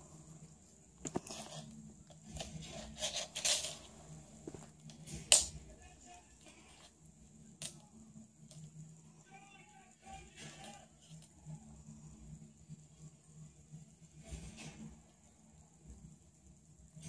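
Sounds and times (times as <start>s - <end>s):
toy taps and scrapes on floor: 1.0s - 5.5s.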